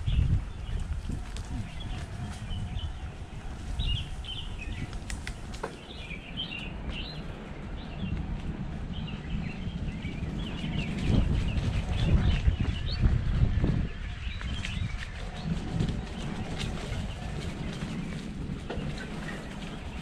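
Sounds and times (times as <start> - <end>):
birds chirping: 0.0 - 20.0
wind and tyres rumbling: 0.0 - 20.0
bike clicks: 3.5 - 7.3.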